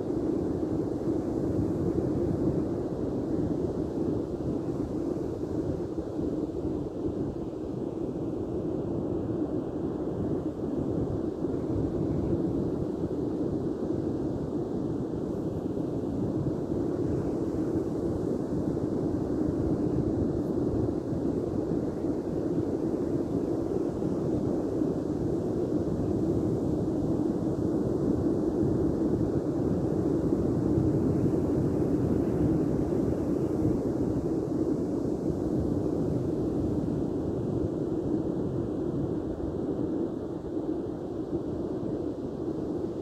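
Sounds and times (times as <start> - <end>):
wind: 0.0 - 43.0.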